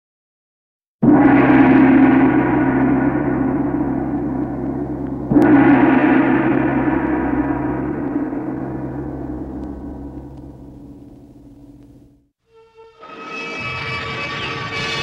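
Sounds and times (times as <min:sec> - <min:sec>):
deep gong strike ringing: 0:01.0 - 0:12.2.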